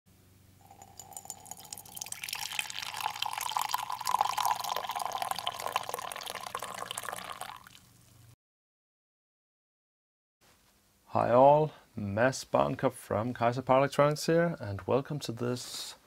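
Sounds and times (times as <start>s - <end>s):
coffee pouring into a mug: 0.6s - 8.0s.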